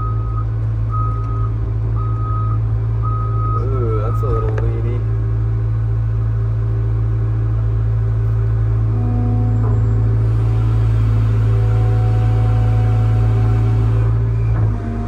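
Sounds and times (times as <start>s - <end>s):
excavator diesel engine running: 0.0s - 15.0s
hydraulic whine: 8.1s - 15.0s.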